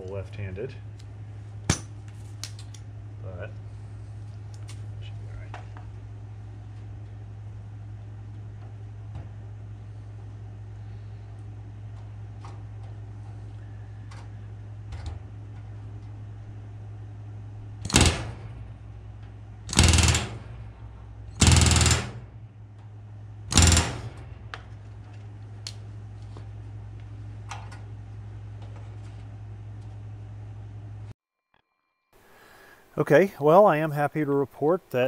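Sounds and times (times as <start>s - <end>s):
steady low hum: 0.0s - 31.2s
pneumatic rivet gun hammering: 17.8s - 18.7s, 19.7s - 20.7s, 21.3s - 22.4s, 23.5s - 24.8s.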